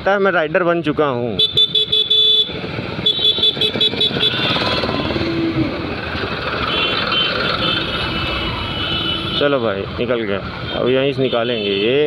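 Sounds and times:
motorcycle engine and road rumble: 0.0s - 12.0s
high-pitched vehicle horn beeping: 1.4s - 5.2s, 6.6s - 9.5s.

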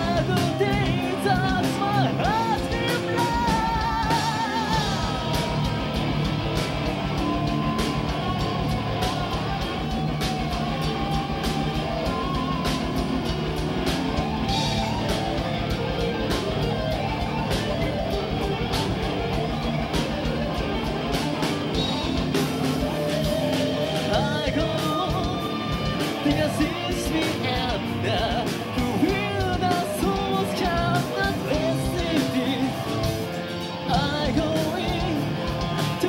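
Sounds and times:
person singing: 0.0s - 6.2s, 22.4s - 36.0s
metal band playing: 0.0s - 36.0s.

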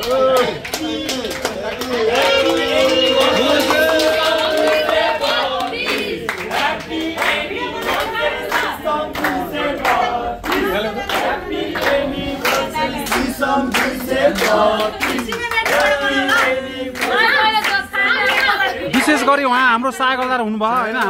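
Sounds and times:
group of people singing: 0.0s - 19.4s
rhythmic clapping: 0.0s - 21.0s.

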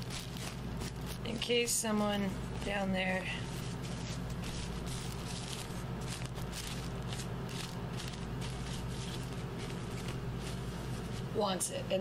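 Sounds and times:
plastic bag crinkling: 0.0s - 11.4s
steady low hum: 0.0s - 12.0s
marker pen scratching on plastic: 2.6s - 11.4s.

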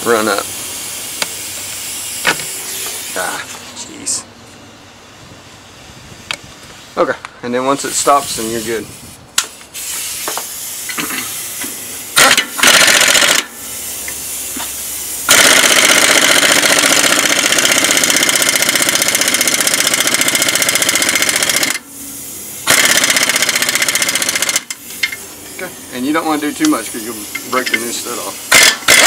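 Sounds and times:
power tool pulsing chatter: 25.2s - 29.0s.

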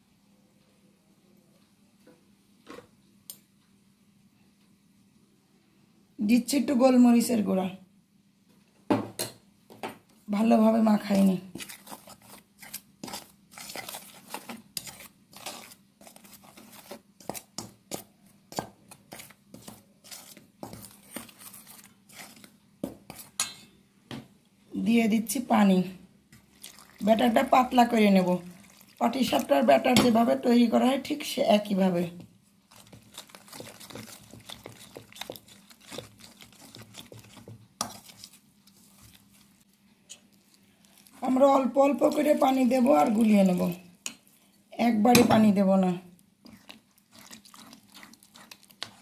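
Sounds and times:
spoon stirring wet batter: 10.0s - 23.8s, 25.2s - 49.0s
spoon scraping metal bowl: 11.0s - 23.8s, 32.7s - 39.2s, 46.4s - 49.0s.

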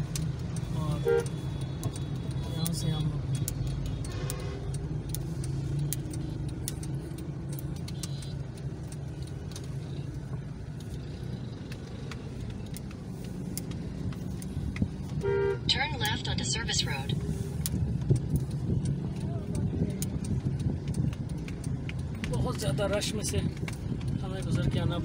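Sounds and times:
light ticks: 0.0s - 15.3s, 17.1s - 25.0s
engine and road rumble in car: 0.0s - 25.0s.

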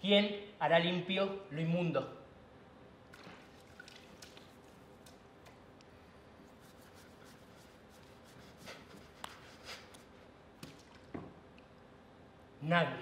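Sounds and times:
wet hands rubbing skin: 3.2s - 10.4s.

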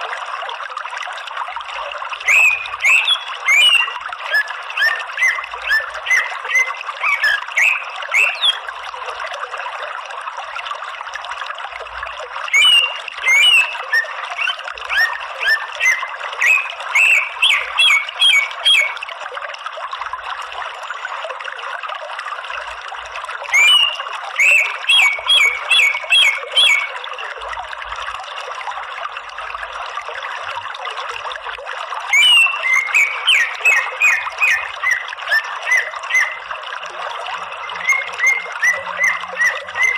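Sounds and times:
running water: 0.0s - 39.9s
bird chattering calls: 2.2s - 8.6s, 12.5s - 19.0s, 23.6s - 26.9s, 32.1s - 36.4s, 37.8s - 39.9s.

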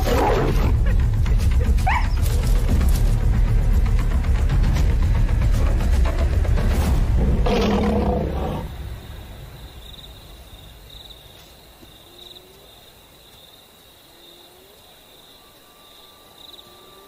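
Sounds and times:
high insect trill: 0.0s - 17.0s
lion roaring: 7.2s - 8.8s.

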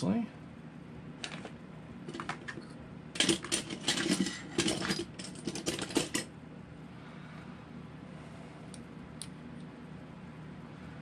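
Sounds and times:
metal parts clicking and clinking: 3.2s - 6.3s.

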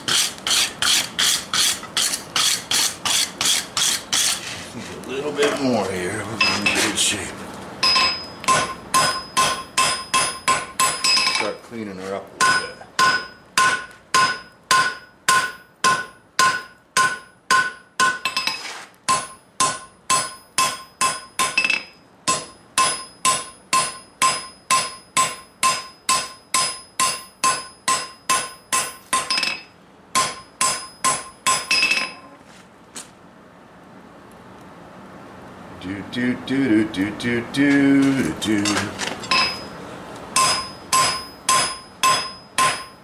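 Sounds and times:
hammer striking hot steel on anvil: 0.0s - 4.4s, 7.8s - 11.6s, 12.4s - 32.2s, 38.0s - 39.7s, 40.4s - 43.0s
anvil ringing: 7.8s - 11.5s, 12.4s - 32.2s, 39.2s - 39.8s, 40.4s - 43.0s.

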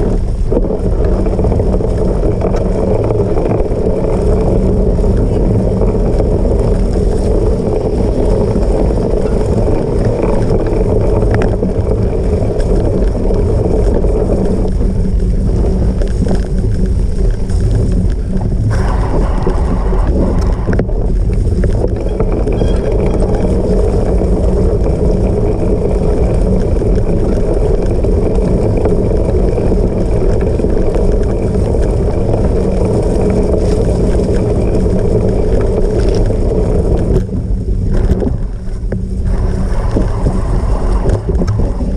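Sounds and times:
bike rumbling over rough ground: 0.0s - 41.9s
wind buffeting microphone: 0.0s - 41.9s.

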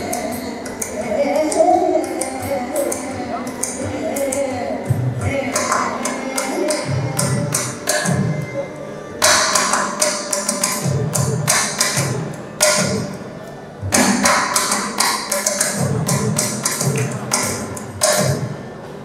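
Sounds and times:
drum strokes: 9.2s - 13.2s, 13.8s - 18.7s.

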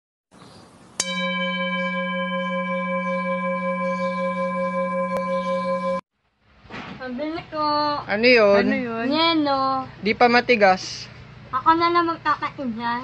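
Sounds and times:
bell-like ringing tone: 1.0s - 6.0s.

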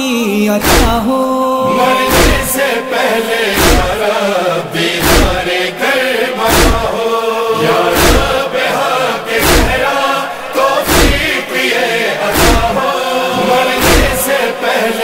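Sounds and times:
voices chanting a lament: 0.1s - 15.0s
deep thump: 0.6s - 1.0s, 1.8s - 2.6s, 3.6s - 4.0s, 5.0s - 5.4s, 6.4s - 7.0s, 7.9s - 8.4s, 9.4s - 9.9s, 10.8s - 11.3s, 12.3s - 12.8s, 13.4s - 14.2s.

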